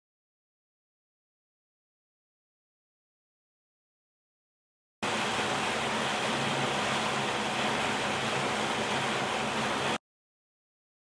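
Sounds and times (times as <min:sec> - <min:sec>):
steady rushing noise: 0:05.0 - 0:10.0.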